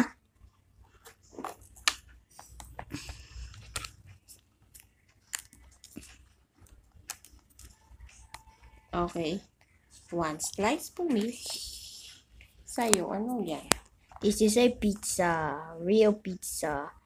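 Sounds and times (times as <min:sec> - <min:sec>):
sticky slime clicks and crackles: 0:04.6 - 0:08.5.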